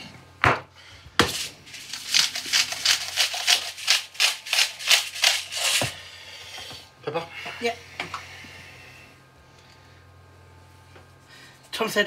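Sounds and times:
pepper mill grinding: 0:01.3 - 0:05.9.

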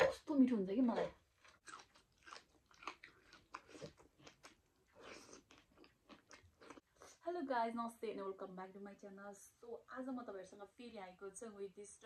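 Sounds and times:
person chewing food: 0:01.0 - 0:07.1.

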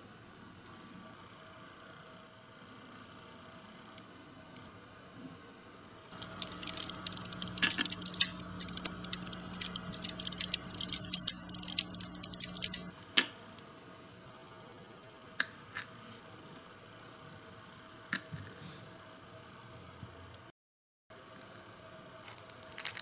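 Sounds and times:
faint steady hum: 0:00.0 - 0:20.5
plastic pieces clicking and rattling: 0:06.1 - 0:12.9, 0:22.2 - 0:23.0.

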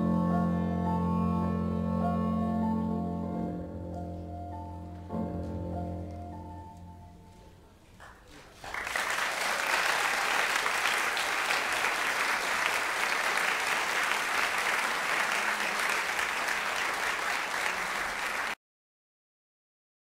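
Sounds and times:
audience applauding: 0:08.0 - 0:18.6.

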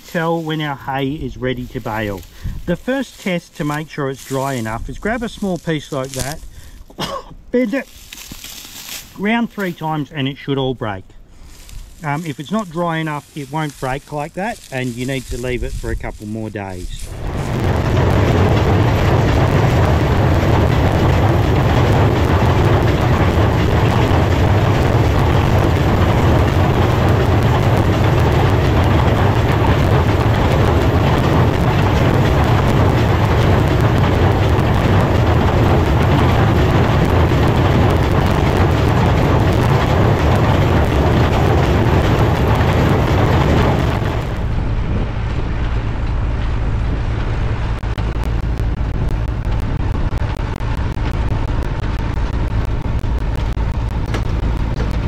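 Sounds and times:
baler machinery clatter: 0:00.0 - 0:55.0
tractor engine drone: 0:00.0 - 0:55.0.

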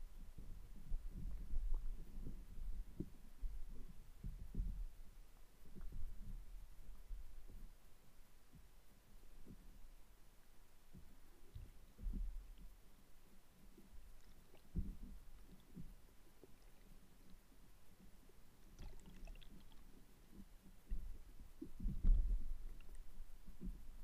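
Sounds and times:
muffled underwater rumbles and thumps: 0:00.0 - 0:10.0, 0:10.8 - 0:24.0
faint crackles: 0:10.9 - 0:24.0.

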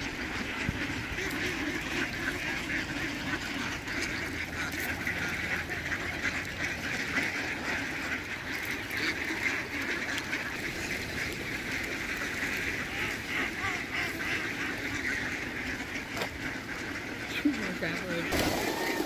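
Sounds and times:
ducks quacking: 0:00.0 - 0:19.0
geese honking: 0:00.0 - 0:19.0.

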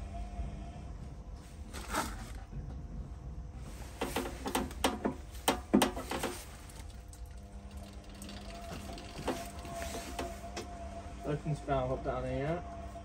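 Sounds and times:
low steady hum: 0:00.0 - 0:13.0
sharp knocks and rattles: 0:03.8 - 0:10.3.

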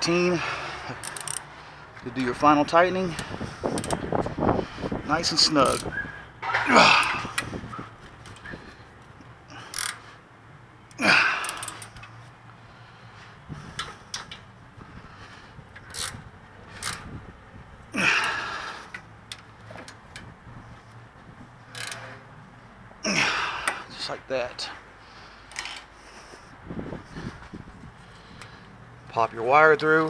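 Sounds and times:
clicks of hands handling parts: 0:13.7 - 0:14.5, 0:25.5 - 0:25.9.

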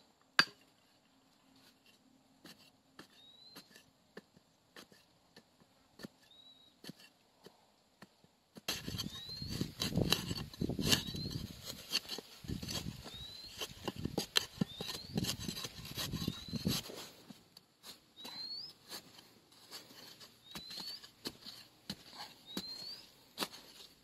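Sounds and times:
bird whistling: 0:03.1 - 0:03.7, 0:06.3 - 0:06.8, 0:09.0 - 0:09.7, 0:10.9 - 0:11.4, 0:13.0 - 0:13.7, 0:14.6 - 0:15.3, 0:16.2 - 0:16.8, 0:18.2 - 0:18.8, 0:20.4 - 0:21.1, 0:22.4 - 0:23.2.

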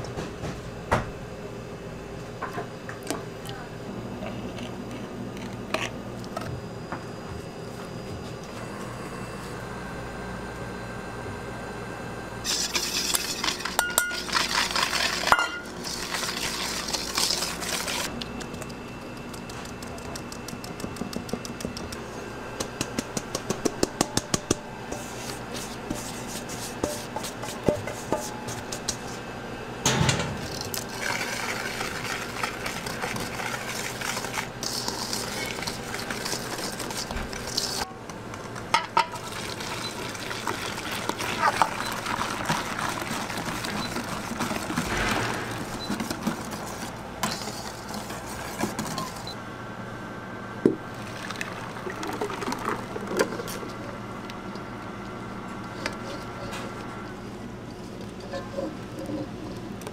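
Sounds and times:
whisk scraping metal bowl: 0:12.5 - 0:18.1, 0:24.9 - 0:29.2, 0:30.5 - 0:37.9.

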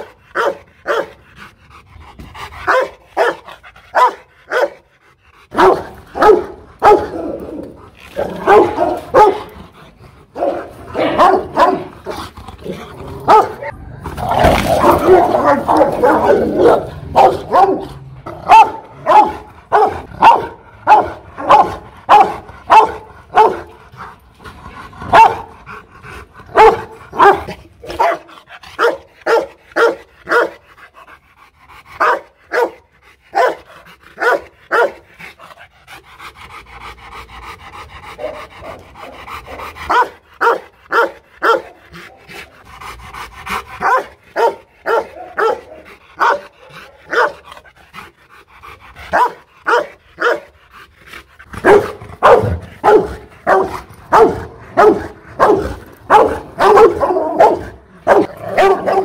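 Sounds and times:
dog barking: 0:00.0 - 0:01.1, 0:02.7 - 0:04.8, 0:05.5 - 0:07.2, 0:08.2 - 0:09.5, 0:10.4 - 0:11.9, 0:13.3 - 0:13.7, 0:14.8 - 0:23.7, 0:25.1 - 0:25.5, 0:26.5 - 0:30.6, 0:32.0 - 0:33.6, 0:34.2 - 0:35.0, 0:39.9 - 0:41.8, 0:43.8 - 0:47.4, 0:49.1 - 0:50.5, 0:51.6 - 0:59.0.

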